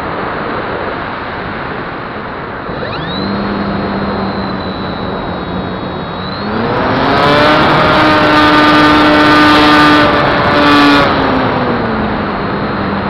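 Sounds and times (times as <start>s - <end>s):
rc airplane motor whine: 2.6s - 11.1s.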